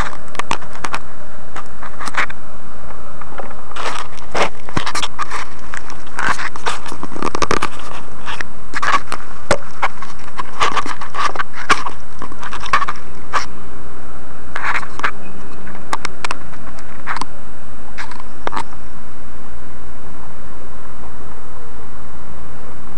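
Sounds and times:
crackling with pops: 0:00.0 - 0:13.5, 0:14.5 - 0:18.9
faint low hum: 0:00.0 - 0:22.9.

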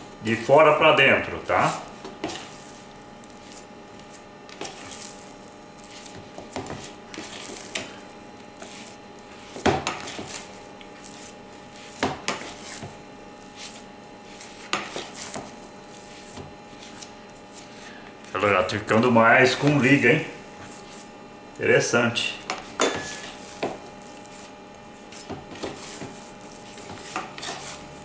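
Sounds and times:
dough squishing: 0:00.2 - 0:28.0.

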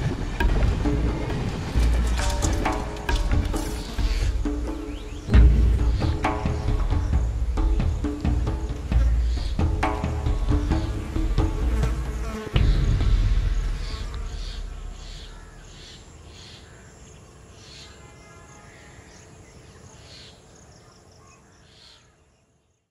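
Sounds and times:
insects buzzing and chirping: 0:00.0 - 0:22.9
deep low boom: 0:05.3 - 0:08.5, 0:12.6 - 0:15.6.

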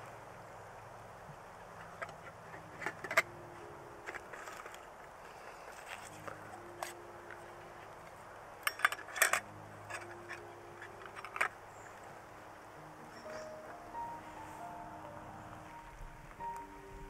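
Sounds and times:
metal clinks and taps: 0:08.6 - 0:11.5.

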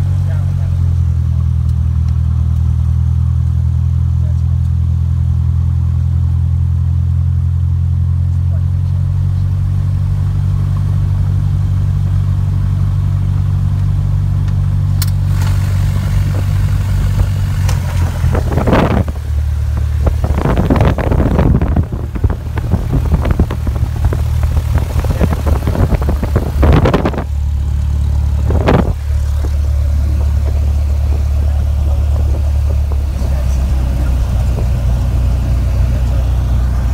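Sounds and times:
airplane engine droning: 0:08.4 - 0:36.9.

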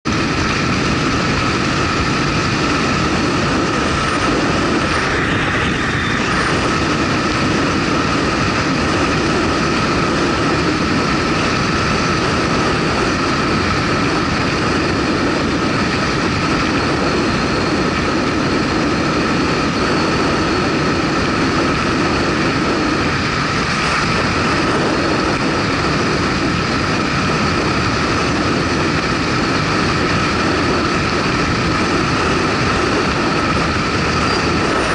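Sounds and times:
motorcycle engine drone: 0:00.0 - 0:34.9
steady high whine: 0:00.0 - 0:34.9
wind and road noise: 0:00.0 - 0:34.9.

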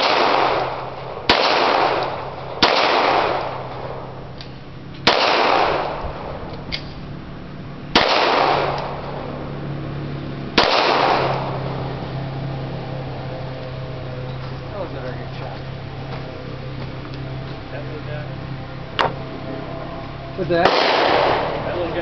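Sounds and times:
pistol shots with echo: 0:00.0 - 0:04.0, 0:05.0 - 0:06.9, 0:07.9 - 0:09.1, 0:10.6 - 0:11.7, 0:20.6 - 0:21.8.

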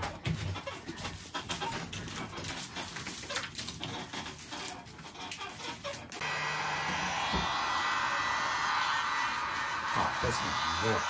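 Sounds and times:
heat gun blowing air: 0:06.2 - 0:11.0.

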